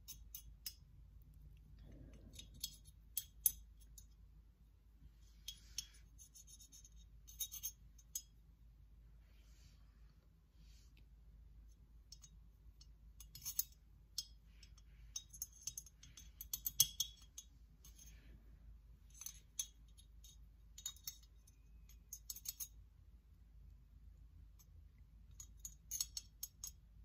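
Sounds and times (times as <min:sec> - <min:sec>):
soft brush scrapes: 0:09.1 - 0:11.1.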